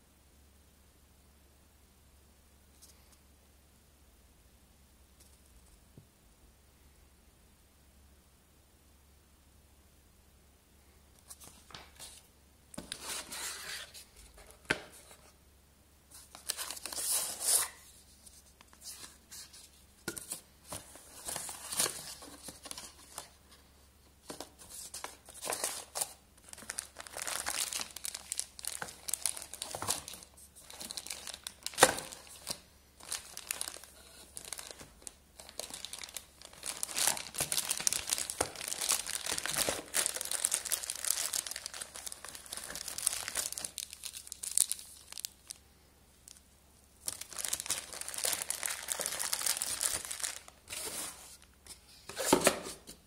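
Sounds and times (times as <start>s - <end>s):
plastic bag crinkling: 25.8s - 45.6s, 47.0s - 51.4s.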